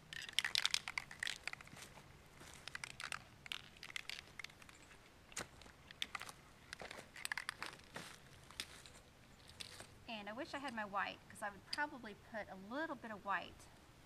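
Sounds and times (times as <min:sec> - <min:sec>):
footsteps crunching on dry leaves: 0:01.3 - 0:10.0.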